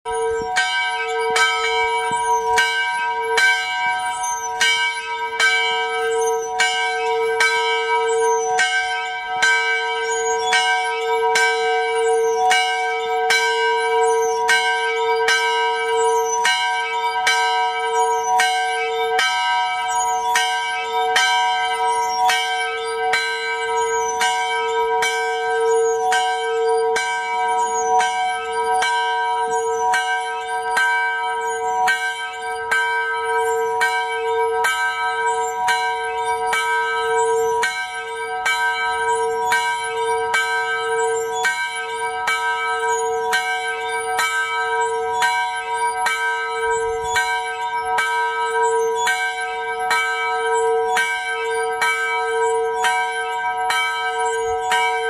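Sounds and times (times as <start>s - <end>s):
church bell ringing: 0.1s - 55.0s.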